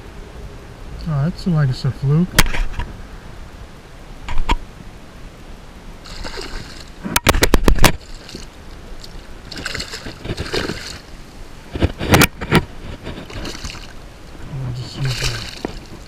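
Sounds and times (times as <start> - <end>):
fish splashing at water surface: 6.0 - 12.3, 13.0 - 16.0.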